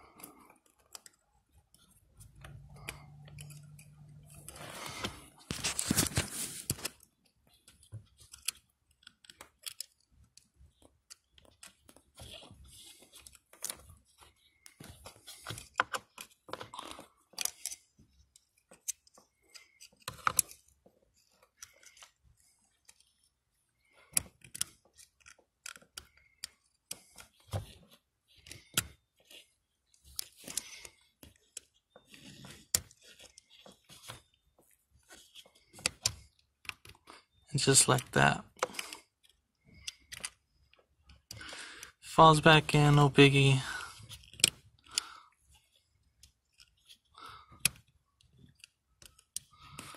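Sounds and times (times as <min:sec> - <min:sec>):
small pick scraping and clicking: 0:00.1 - 0:34.4.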